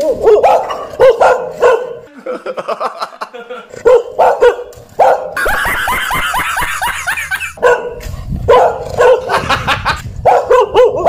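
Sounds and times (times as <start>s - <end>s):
dog barking and snarling: 0.0s - 2.1s, 3.7s - 5.4s, 7.6s - 9.4s, 10.2s - 11.0s.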